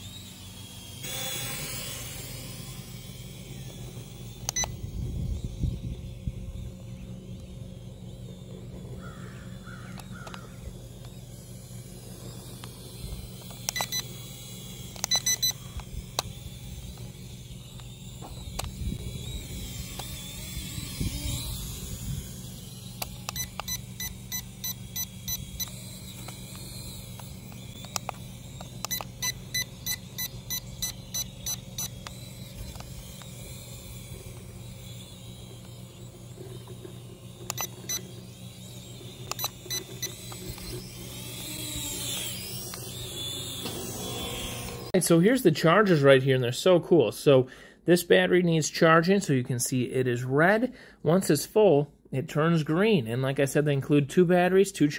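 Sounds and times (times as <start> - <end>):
drone propellers humming: 0.0 - 45.2
rapid high electronic beeps: 15.0 - 15.7, 23.3 - 25.8, 28.8 - 32.5, 37.5 - 38.1.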